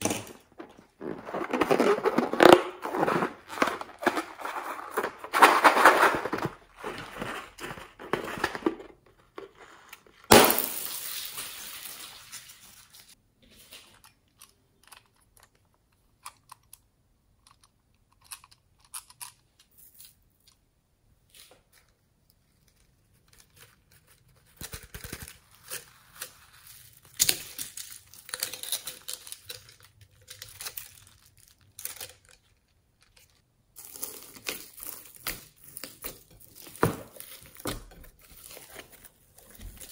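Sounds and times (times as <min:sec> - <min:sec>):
slime crackling and crinkling: 0:00.0 - 0:13.2
foam beads rattling: 0:10.3 - 0:13.2.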